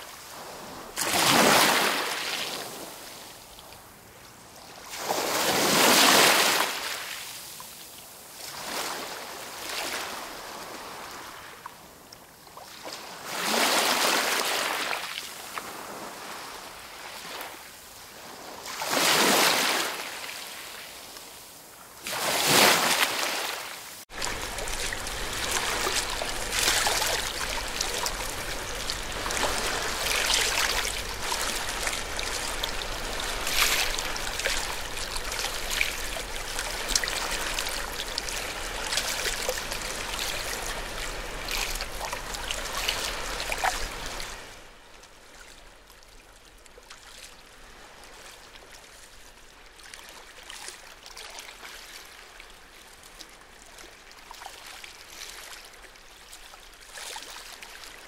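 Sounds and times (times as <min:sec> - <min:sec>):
water trickling and splashing: 0:00.0 - 0:03.9, 0:22.0 - 0:58.0.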